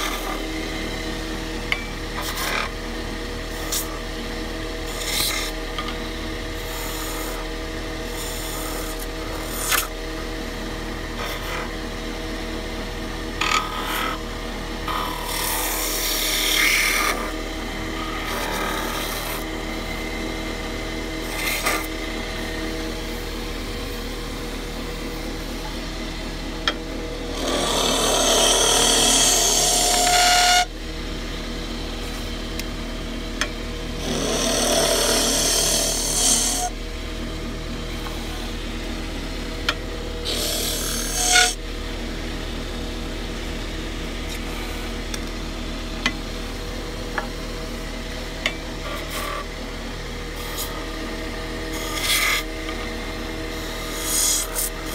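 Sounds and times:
turning tool scraping wood: 0:00.0 - 0:01.0, 0:01.6 - 0:02.8, 0:03.5 - 0:04.1, 0:04.8 - 0:10.0, 0:10.9 - 0:11.9, 0:13.3 - 0:20.2, 0:21.0 - 0:23.2, 0:27.2 - 0:30.7, 0:34.0 - 0:36.8, 0:40.2 - 0:41.6, 0:48.7 - 0:49.6, 0:50.3 - 0:50.9, 0:51.6 - 0:52.9, 0:53.5 - 0:54.9
wood lathe motor running: 0:00.0 - 0:54.9.

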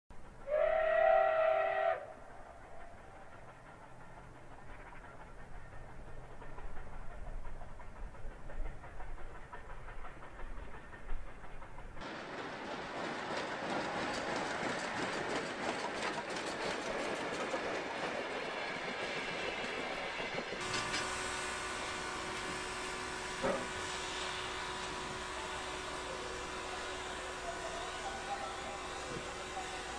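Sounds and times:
train wheels clattering over rails: 0:02.7 - 0:21.2
steam hissing: 0:16.8 - 0:29.9.

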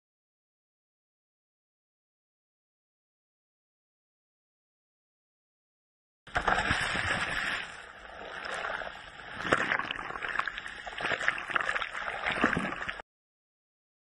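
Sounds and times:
ocean surf splashing: 0:06.3 - 0:11.2.

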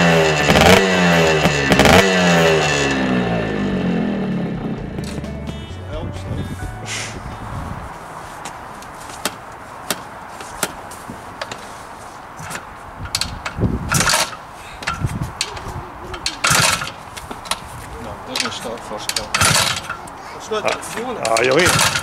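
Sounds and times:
motorcycle kickstart strokes: 0:00.0 - 0:05.2, 0:12.4 - 0:17.7, 0:18.3 - 0:22.0.

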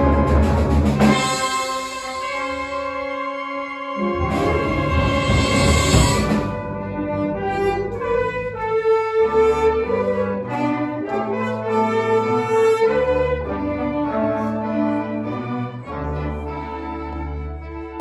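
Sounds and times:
low bass notes: 0:00.0 - 0:01.2
held brass chords: 0:00.0 - 0:18.0.

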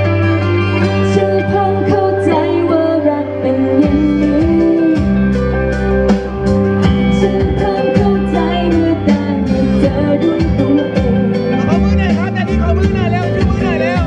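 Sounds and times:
pop backing track with guitar: 0:00.0 - 0:14.0
woman singing into a microphone: 0:00.6 - 0:05.6, 0:06.8 - 0:11.7
steady drum beat: 0:03.9 - 0:14.0.

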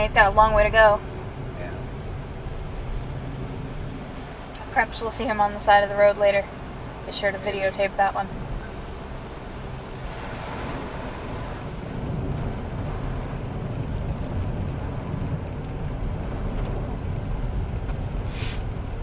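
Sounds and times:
car driving on snowy road: 0:00.0 - 0:19.0
brief hiss: 0:18.3 - 0:18.7.

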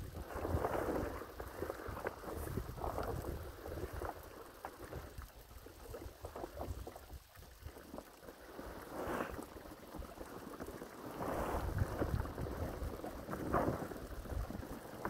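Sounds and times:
wind rumbling on microphone: 0:00.0 - 0:15.0
plastic sheet rustling and crinkling: 0:07.8 - 0:15.0.

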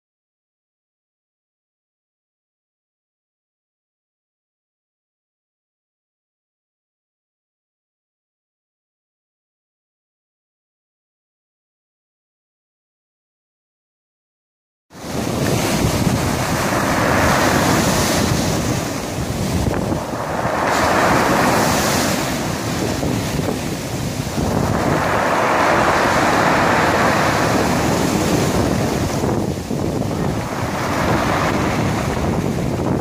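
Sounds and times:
waves washing over pebbles: 0:15.0 - 0:33.0
wind rumbling on microphone: 0:15.0 - 0:33.0.

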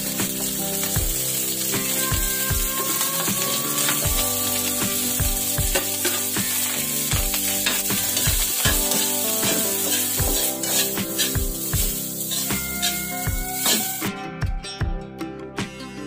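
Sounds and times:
rice sizzling in a wok: 0:00.0 - 0:14.1
background music with steady beat: 0:00.0 - 0:16.0
metal spoon scraping pan: 0:02.6 - 0:14.1.

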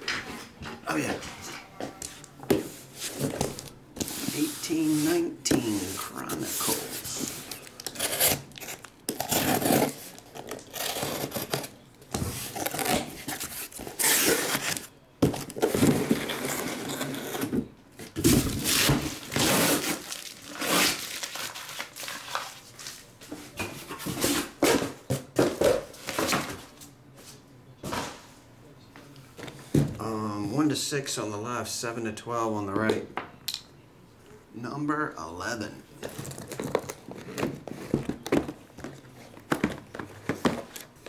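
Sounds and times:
shrink-wrap crinkling: 0:18.6 - 0:23.1.

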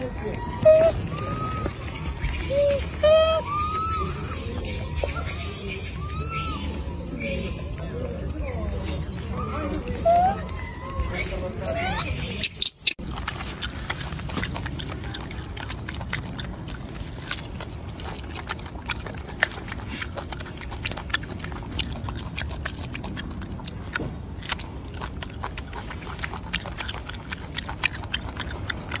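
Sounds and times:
monkey chewing food: 0:00.0 - 0:05.4, 0:07.5 - 0:29.0
low steady rumble: 0:13.0 - 0:29.0.

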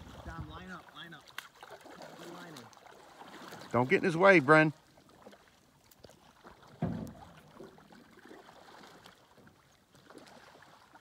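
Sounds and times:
water lapping against canoe: 0:00.0 - 0:11.0
low thump: 0:06.7 - 0:07.5.

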